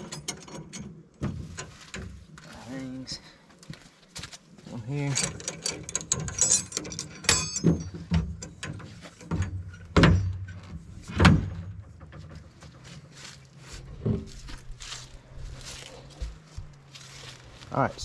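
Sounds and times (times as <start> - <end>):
metal bars rattling and clanking: 0.0 - 2.4, 5.0 - 13.2.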